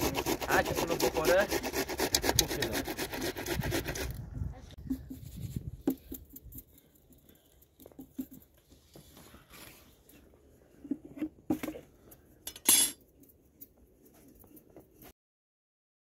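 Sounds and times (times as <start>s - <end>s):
cutlery and dishes clinking: 12.5s - 13.0s.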